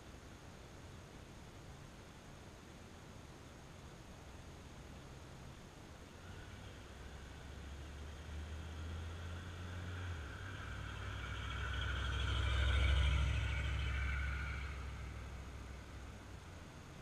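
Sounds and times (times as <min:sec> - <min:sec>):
car engine rumble: 0:04.2 - 0:17.0.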